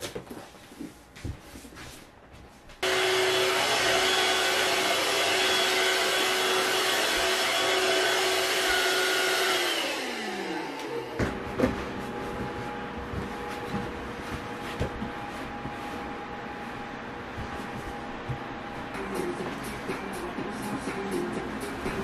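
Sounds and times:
vacuum cleaner motor whine: 0:02.8 - 0:19.1.

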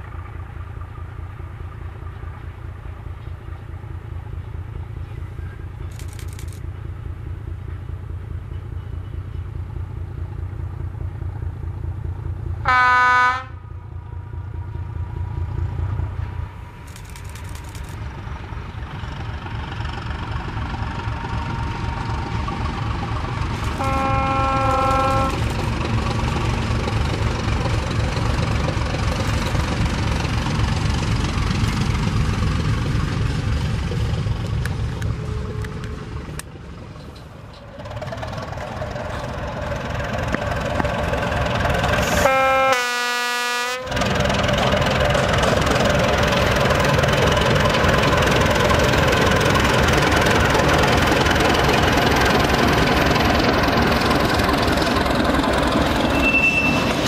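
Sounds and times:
diesel locomotive engine: 0:00.0 - 0:57.0
train horn blasts: 0:12.6 - 0:13.7, 0:23.7 - 0:25.4, 0:42.0 - 0:44.0.

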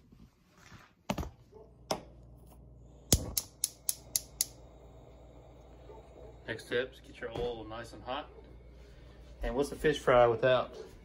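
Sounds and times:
low rush of burner flame: 0:02.2 - 0:11.0
gas stove igniter clicking: 0:03.0 - 0:05.7.

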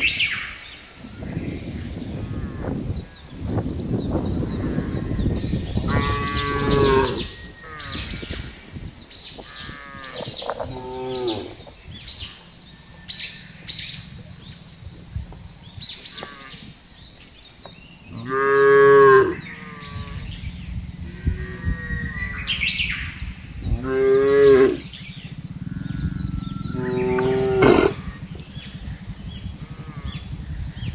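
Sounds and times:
cattle mooing: 0:05.9 - 0:08.1, 0:09.6 - 0:11.7, 0:16.2 - 0:16.7, 0:18.2 - 0:22.2, 0:23.7 - 0:24.9, 0:25.7 - 0:28.4.

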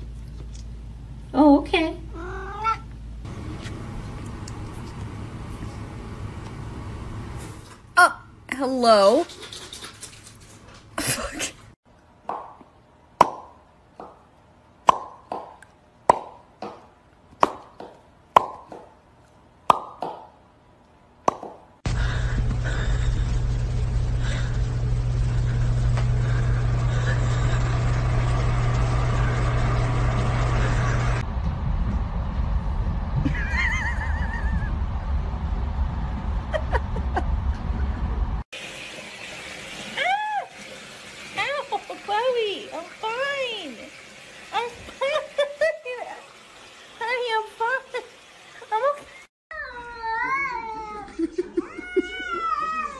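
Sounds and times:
cat yowling: 0:02.1 - 0:02.9, 0:49.5 - 0:52.9
sharp hollow pops: 0:14.8 - 0:19.0
steady low rumble: 0:21.9 - 0:38.5.

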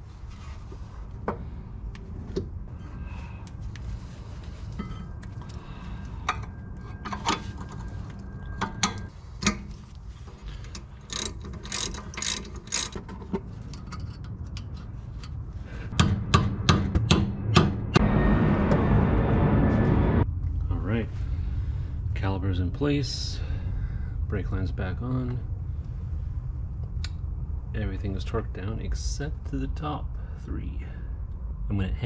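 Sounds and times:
metal clicks and clanks: 0:06.2 - 0:15.4
ratchet wrench clicking: 0:10.7 - 0:13.2.

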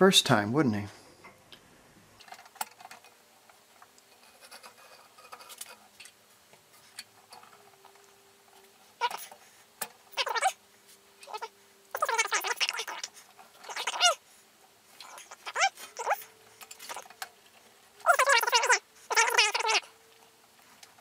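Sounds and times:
bead roller creaking on metal sheet: 0:04.1 - 0:06.1, 0:11.2 - 0:14.2, 0:15.0 - 0:17.3
short squeaks: 0:09.0 - 0:09.3, 0:10.1 - 0:10.6, 0:11.2 - 0:14.2, 0:15.0 - 0:17.2, 0:18.0 - 0:19.9.

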